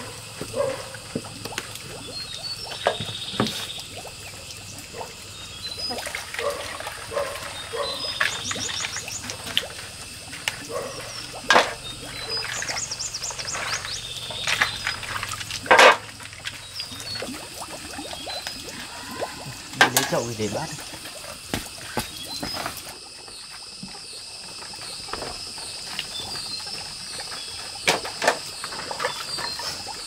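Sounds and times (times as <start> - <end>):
water sloshing and pouring: 0.0 - 30.0
dishes clattering: 11.5 - 12.7, 13.4 - 16.1.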